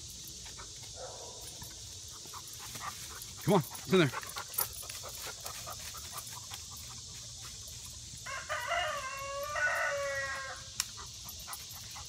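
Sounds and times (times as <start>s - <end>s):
rooster crowing: 8.2s - 10.8s.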